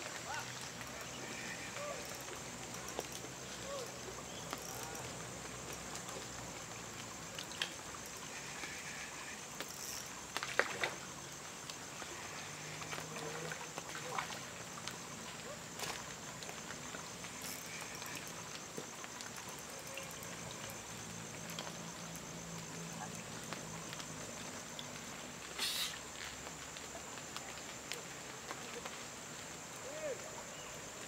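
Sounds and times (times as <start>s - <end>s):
high-pitched insect drone: 17.3s - 18.6s.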